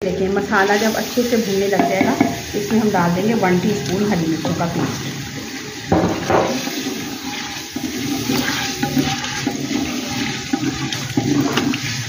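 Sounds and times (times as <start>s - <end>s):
oil sizzling and sloshing: 0.2s - 12.0s
spatula scraping a clay pot: 7.1s - 12.0s.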